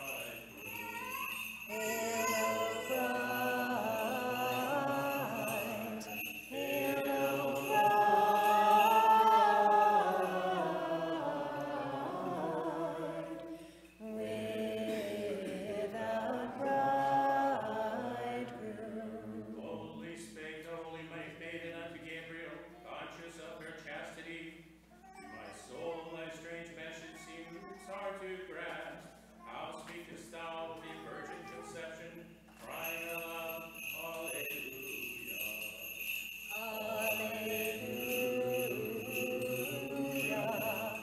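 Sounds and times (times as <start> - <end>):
unaccompanied liturgical chant: 1.4 - 22.4, 31.7 - 41.0.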